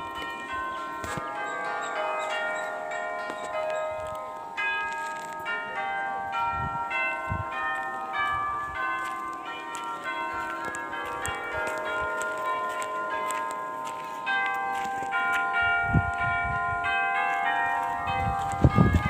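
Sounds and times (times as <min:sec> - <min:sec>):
bells ringing: 0:00.0 - 0:19.0.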